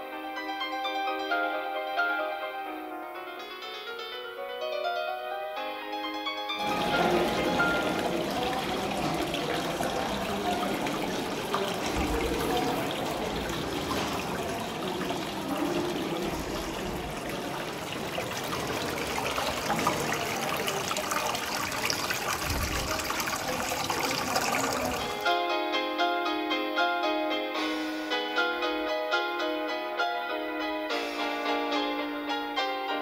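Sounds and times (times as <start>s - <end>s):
fountain water trickling and splashing: 6.6s - 25.3s.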